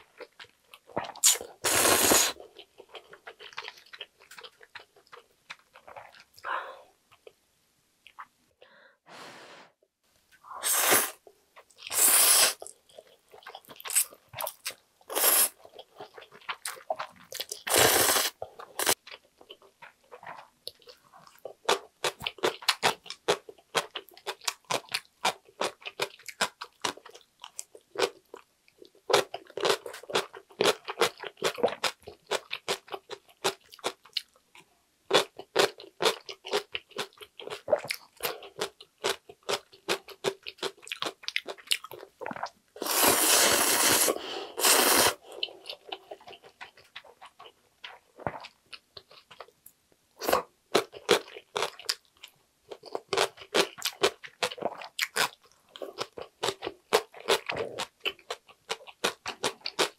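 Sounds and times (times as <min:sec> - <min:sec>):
noodle slurps: 0:01.1 - 0:02.4, 0:11.9 - 0:12.7, 0:17.7 - 0:19.0, 0:42.8 - 0:45.2
wet chewing: 0:02.3 - 0:06.4.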